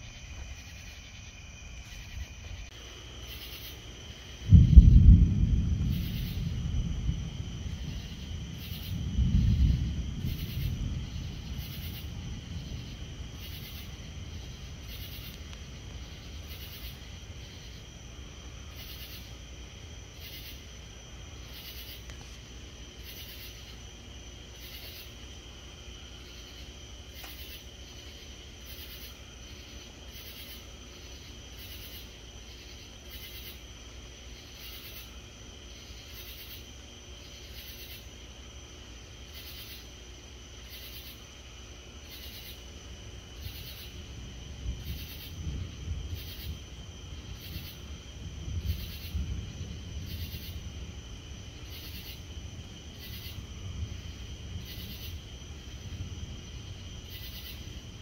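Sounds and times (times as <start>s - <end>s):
night insects droning and chirping: 0.0s - 58.0s
thunder rumbling: 3.3s - 22.3s, 43.1s - 58.0s.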